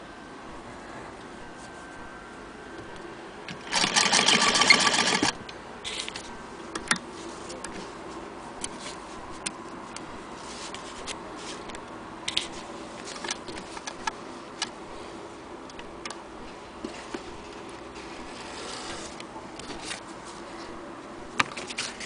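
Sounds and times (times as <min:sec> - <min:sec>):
sewing machine clatter: 0:03.6 - 0:05.3.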